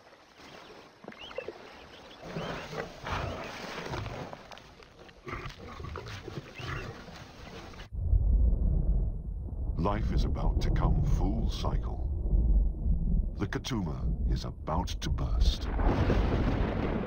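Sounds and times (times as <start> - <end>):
lions growling: 2.2 - 4.4, 5.2 - 7.8.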